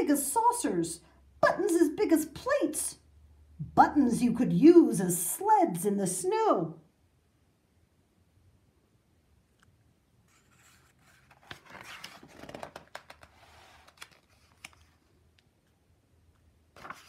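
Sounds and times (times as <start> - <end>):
paper page rustling: 10.3 - 15.2, 16.7 - 17.0.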